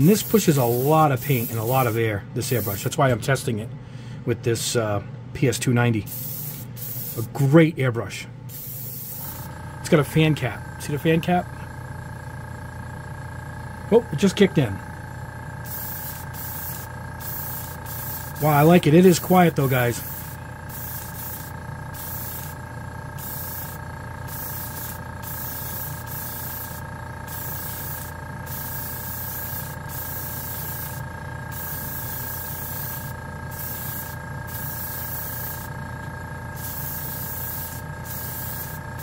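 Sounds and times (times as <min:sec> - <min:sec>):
airbrush air hiss: 0:00.0 - 0:02.9, 0:06.1 - 0:07.4, 0:08.5 - 0:09.6, 0:15.6 - 0:35.8, 0:36.5 - 0:39.0
steady motor hum: 0:00.0 - 0:04.2, 0:05.0 - 0:39.0.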